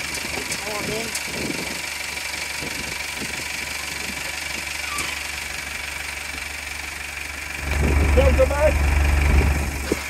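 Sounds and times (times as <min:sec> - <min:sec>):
heavy machine engine idling: 0:00.0 - 0:10.0
high whine: 0:07.6 - 0:10.0.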